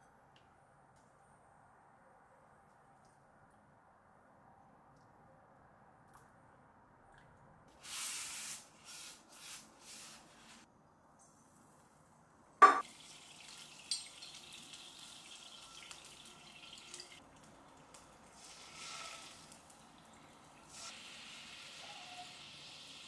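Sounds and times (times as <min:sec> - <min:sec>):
food sizzling in a pan: 0:12.8 - 0:17.2, 0:17.8 - 0:23.0.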